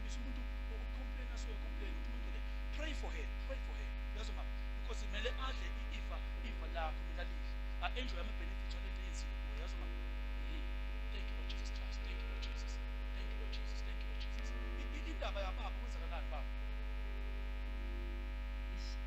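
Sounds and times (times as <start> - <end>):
electrical mains hum: 0.0 - 19.0
faint voices murmuring: 8.8 - 16.4.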